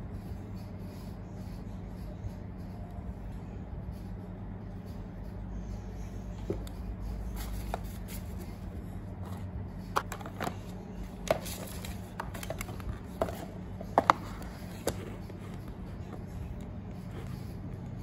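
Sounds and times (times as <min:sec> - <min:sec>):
steady low hum: 0:00.0 - 0:18.0
taps and clicks handling tablet: 0:09.2 - 0:16.7.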